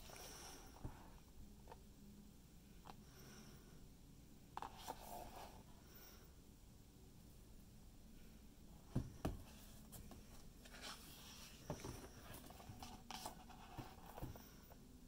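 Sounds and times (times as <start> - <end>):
book pages turning: 10.0 - 14.3.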